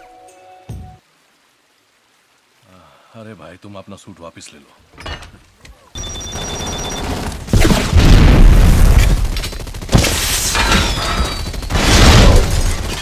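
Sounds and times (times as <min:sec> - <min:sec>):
rapid gunfire: 0:06.3 - 0:13.0
booming blasts: 0:07.4 - 0:09.3, 0:09.9 - 0:13.0.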